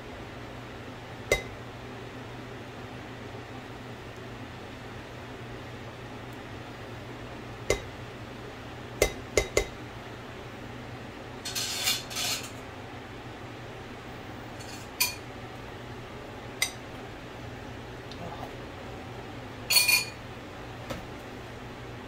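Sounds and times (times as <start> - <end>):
kitchen fan humming: 0.0 - 22.0
spatula knocking on ceramic bowl: 1.3 - 1.5, 9.0 - 9.8
utensil clinking on bowl: 14.6 - 15.2, 19.7 - 20.2.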